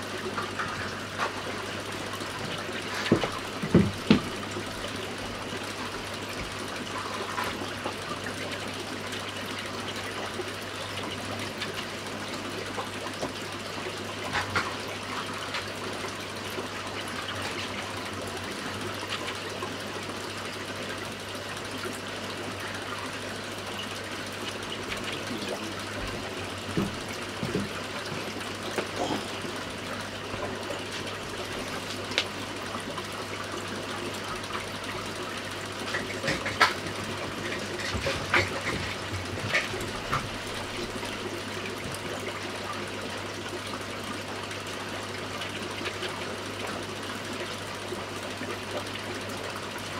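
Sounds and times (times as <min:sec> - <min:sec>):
low pump hum: 0:00.0 - 0:49.9.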